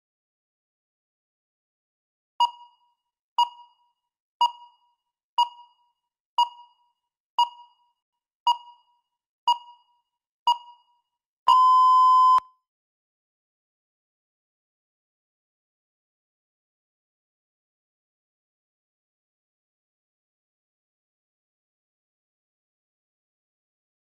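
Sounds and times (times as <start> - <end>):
long timer beep: 11.5 - 12.5
short electronic beeps: 11.5 - 12.5.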